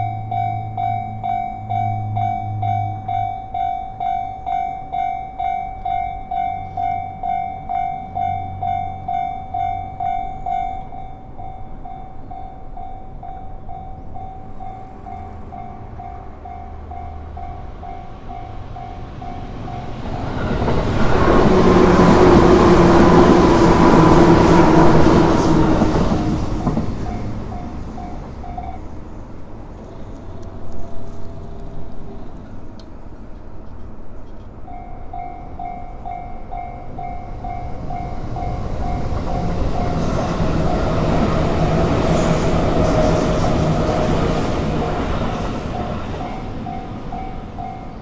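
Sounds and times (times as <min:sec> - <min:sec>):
train passing: 0:00.0 - 0:48.0.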